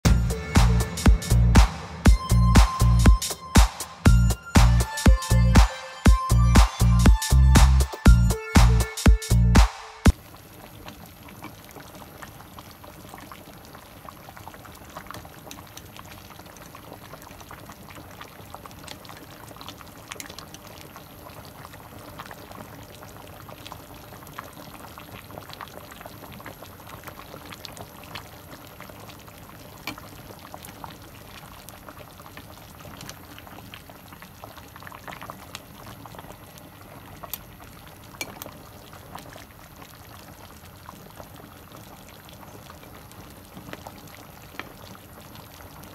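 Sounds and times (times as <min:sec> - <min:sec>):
broth boiling in a pot: 0:10.1 - 0:45.9.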